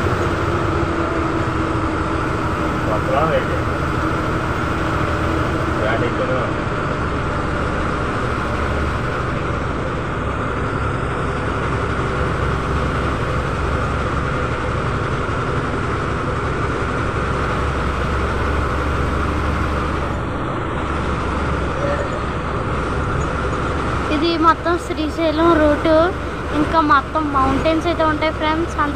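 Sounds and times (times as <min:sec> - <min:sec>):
bus engine drone: 0:00.0 - 0:28.9
road noise: 0:00.0 - 0:28.9.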